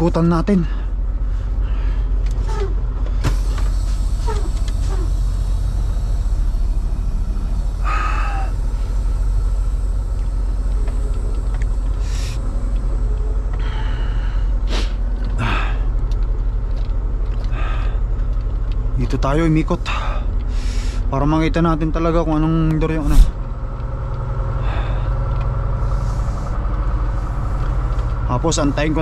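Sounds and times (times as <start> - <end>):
diesel truck engine rumbling: 0.0 - 29.0
air hisses: 3.2 - 12.6.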